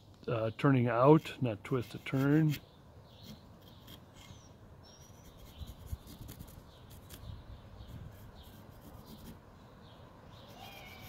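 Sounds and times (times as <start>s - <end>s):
low outdoor background: 0.0s - 11.0s
pencil scratching on wood: 1.8s - 2.6s, 5.0s - 7.2s, 7.9s - 9.4s
small bird chirps: 2.4s - 11.0s.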